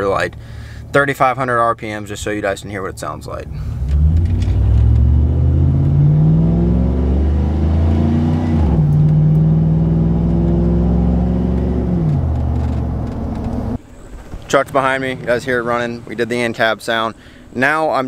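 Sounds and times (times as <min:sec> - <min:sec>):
truck engine accelerating: 0:03.3 - 0:16.4.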